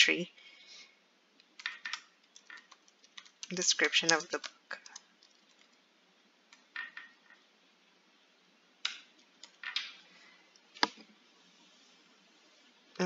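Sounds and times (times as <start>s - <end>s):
computer keyboard keystrokes: 1.5s - 5.8s.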